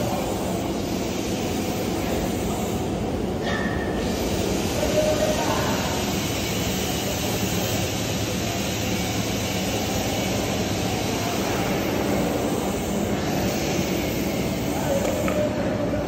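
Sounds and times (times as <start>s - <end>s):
workshop machinery drone: 0.0s - 16.0s.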